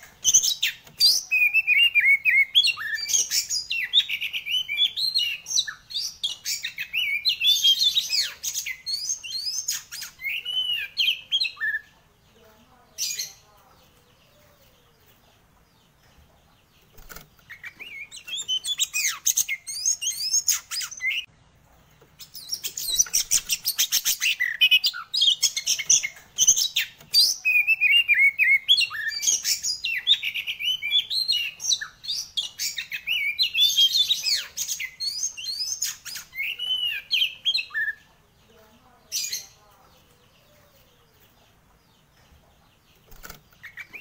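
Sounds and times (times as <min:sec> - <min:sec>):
bird singing whistles and trills: 0:00.2 - 0:11.9, 0:17.5 - 0:21.3, 0:22.3 - 0:38.0.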